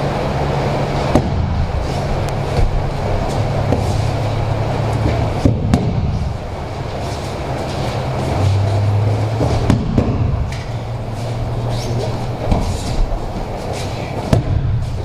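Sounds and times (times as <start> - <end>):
low room hum: 0.0 - 15.0
bare feet knocking on mat: 2.5 - 4.0, 5.0 - 6.3, 9.3 - 10.7, 12.4 - 13.5, 14.2 - 15.0
body thumping on mat: 9.4 - 10.6.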